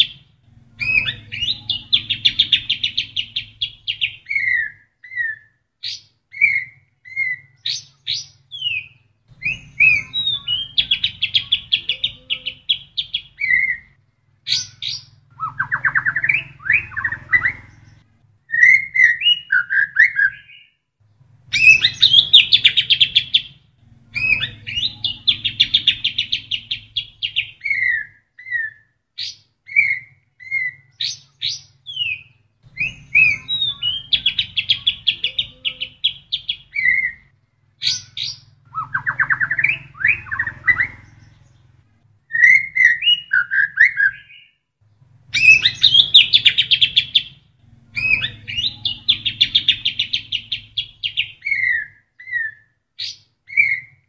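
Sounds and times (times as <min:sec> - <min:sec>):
songbird singing trills: 0:00.0 - 0:20.8, 0:21.5 - 0:54.0.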